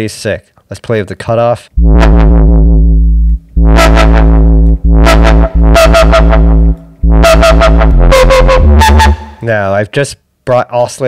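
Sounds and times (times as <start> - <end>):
wobbling synth bass: 1.8 - 9.4.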